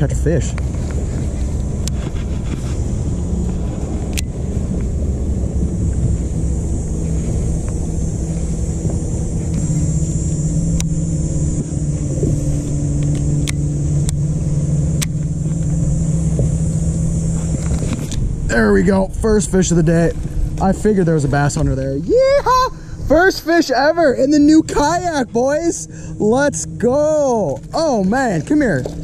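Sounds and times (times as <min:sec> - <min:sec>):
electric motor humming: 0:00.0 - 0:29.0
sharp clicks: 0:12.9 - 0:14.2.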